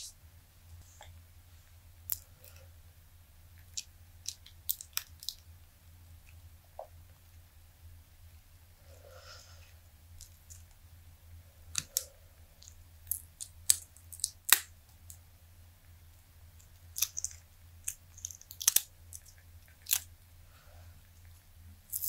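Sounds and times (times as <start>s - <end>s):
silicone mold crackling and snapping: 2.0s - 2.6s, 3.6s - 5.5s, 11.7s - 15.2s, 16.2s - 20.3s, 21.2s - 22.0s.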